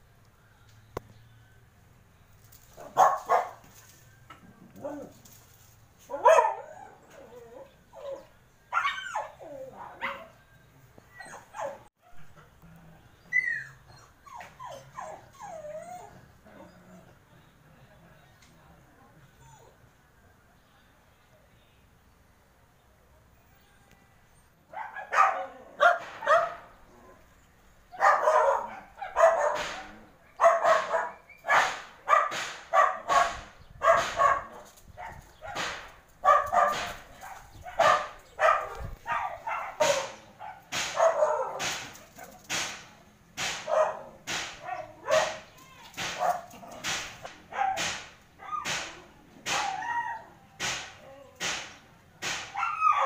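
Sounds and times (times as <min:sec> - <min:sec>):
dog barking: 0:02.8 - 0:03.6, 0:06.1 - 0:07.0, 0:24.7 - 0:26.6, 0:28.0 - 0:42.4, 0:43.6 - 0:45.4, 0:46.2 - 0:46.5, 0:47.5 - 0:48.7.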